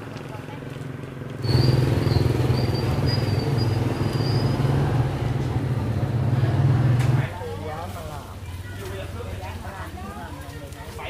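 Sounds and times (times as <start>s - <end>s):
loud engine rumble: 1.0s - 7.3s.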